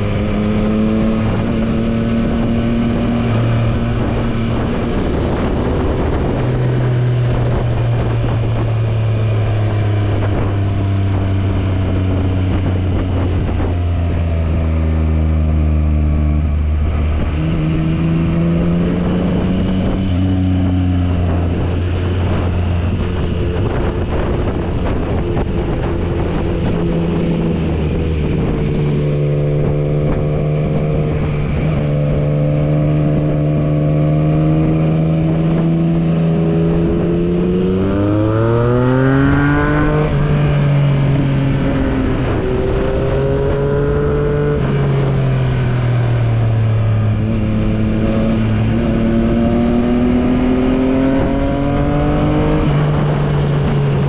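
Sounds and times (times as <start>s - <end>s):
motorcycle engine revving: 0.0s - 54.0s
wind rushing: 16.5s - 54.0s.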